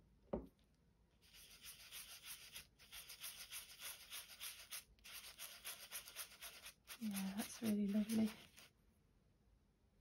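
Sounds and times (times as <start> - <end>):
paintbrush scrubbing paper: 1.2 - 8.8.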